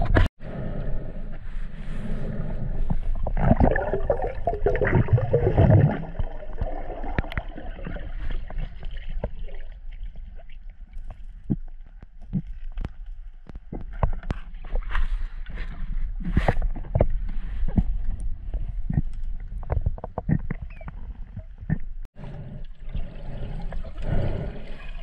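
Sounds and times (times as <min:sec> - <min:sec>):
underwater gurgling and bubbling: 0:03.0 - 0:10.4.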